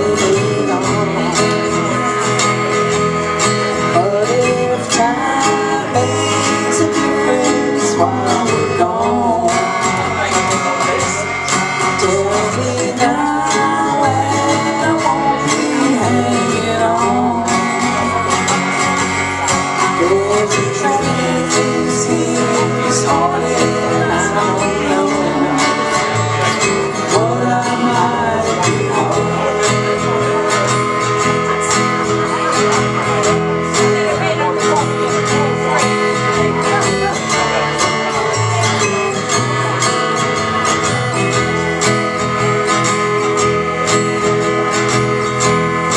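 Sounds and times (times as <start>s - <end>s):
woman singing: 0.0s - 2.1s, 3.8s - 10.3s, 11.7s - 18.6s, 19.9s - 30.7s, 33.8s - 35.8s
electric bass guitar: 0.0s - 45.9s
strummed acoustic guitar: 0.0s - 45.9s.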